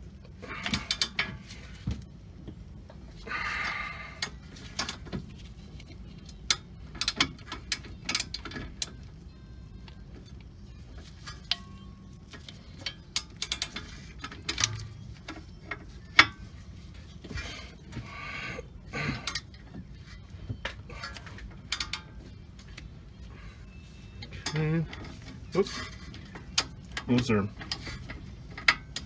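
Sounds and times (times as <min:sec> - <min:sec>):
ratcheting wrench clicking: 0:00.6 - 0:01.2, 0:12.4 - 0:16.4, 0:19.2 - 0:19.6, 0:21.0 - 0:22.0.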